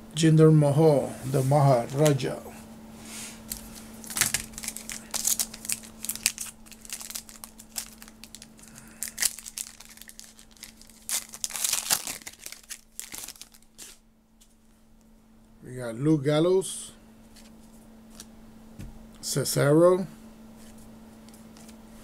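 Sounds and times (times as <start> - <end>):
plastic wrapper crinkling and tearing: 3.5 - 14.0.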